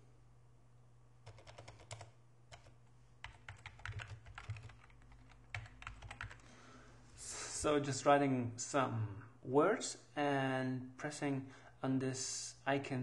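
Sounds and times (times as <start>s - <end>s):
computer keyboard typing: 1.2s - 6.4s.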